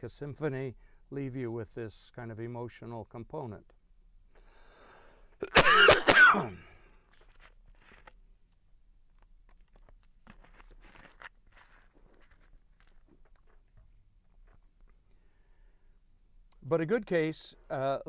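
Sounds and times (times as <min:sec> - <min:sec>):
man coughing: 0:05.4 - 0:06.7.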